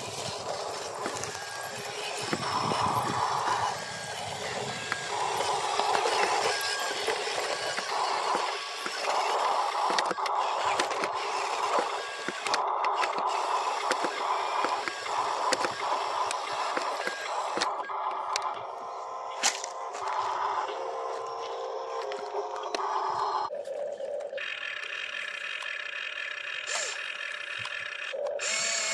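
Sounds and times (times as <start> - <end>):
sharp clicks and crackles: 0.0 - 18.8
electric motors whining: 0.0 - 28.9.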